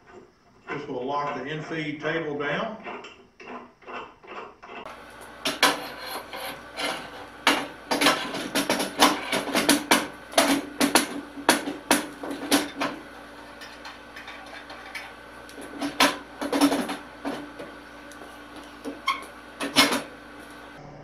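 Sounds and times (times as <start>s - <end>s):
metal knocks and clicks: 5.5s - 13.0s.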